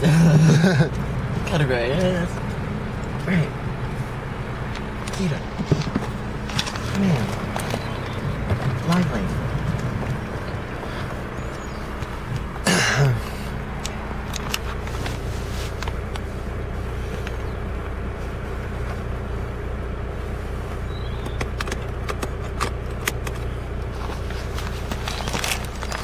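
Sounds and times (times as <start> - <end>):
car engine hum inside cabin: 0.0 - 26.0.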